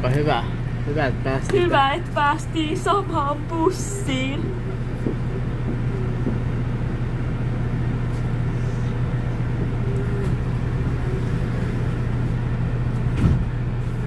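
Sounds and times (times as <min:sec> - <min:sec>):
bus engine low hum: 0:00.0 - 0:14.0
short thump: 0:13.1 - 0:13.5.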